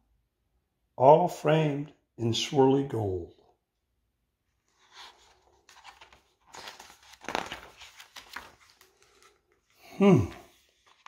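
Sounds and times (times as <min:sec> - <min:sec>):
paper pages rustling: 0:04.6 - 0:09.8, 0:10.4 - 0:11.0.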